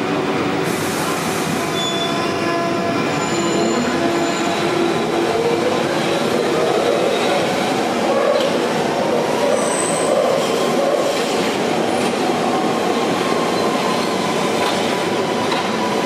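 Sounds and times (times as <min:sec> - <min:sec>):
rising train whine: 0:00.0 - 0:16.0
train wheel and rail rumble: 0:00.0 - 0:16.0
high wheel squeals: 0:01.7 - 0:02.4, 0:03.1 - 0:04.7, 0:09.4 - 0:10.6.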